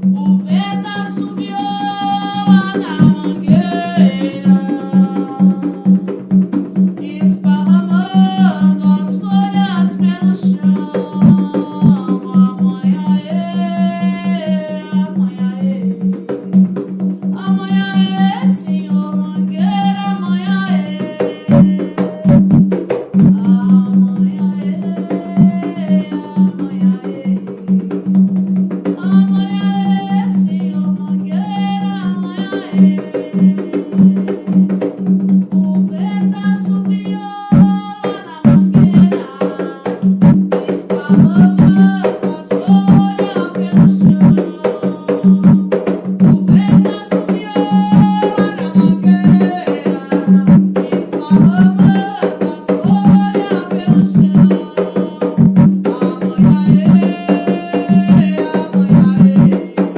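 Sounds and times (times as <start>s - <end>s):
hand drums beating: 0.0s - 59.9s
devotional chant singing: 0.5s - 6.1s, 17.4s - 22.4s, 23.5s - 27.8s, 29.0s - 34.7s, 36.0s - 59.9s.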